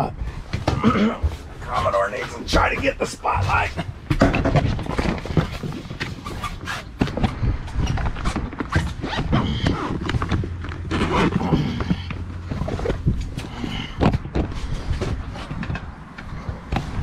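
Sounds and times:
knocks and thumps on boat deck: 0.4s - 6.3s.

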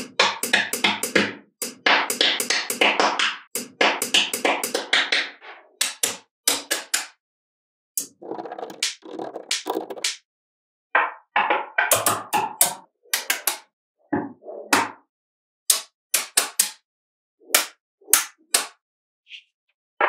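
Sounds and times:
magnetic balls clicking together: 8.0s - 10.2s.

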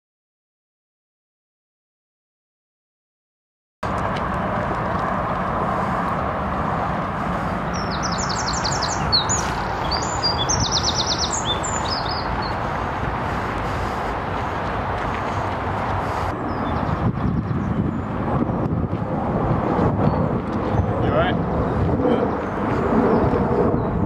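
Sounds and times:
steady rushing background noise: 3.8s - 24.0s
songbird trilling: 7.8s - 12.6s.

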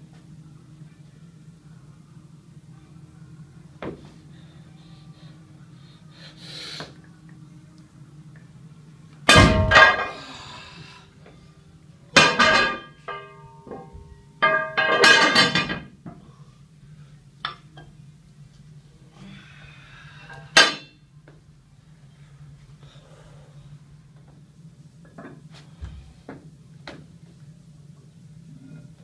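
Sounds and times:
metal hubs ringing: 12.2s - 15.9s.

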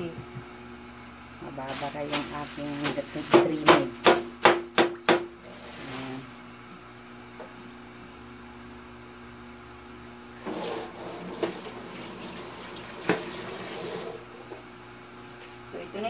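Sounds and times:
faucet water into steel sink: 10.4s - 14.2s.

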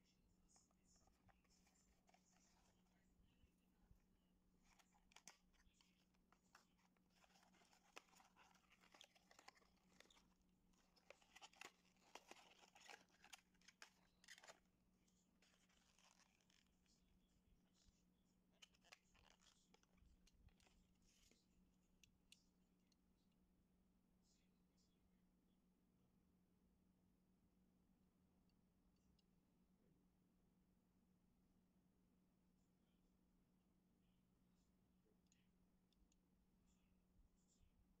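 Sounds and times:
cardboard scratching and tearing: 4.7s - 14.6s, 15.4s - 16.7s
plastic tray clicks and crinkles: 4.7s - 14.6s.

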